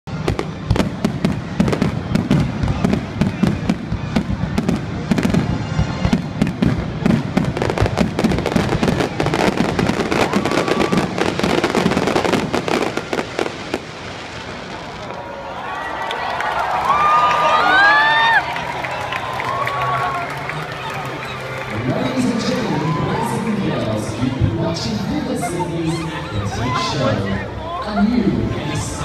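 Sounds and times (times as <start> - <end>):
fireworks crackling and popping: 0.1 - 15.9.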